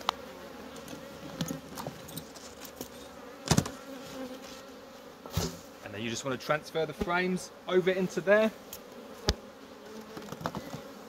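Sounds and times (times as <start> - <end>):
light clicks of hive parts: 0.0 - 3.0, 8.7 - 10.9
honeybees buzzing: 0.0 - 11.0
hive part knock: 3.4 - 3.8.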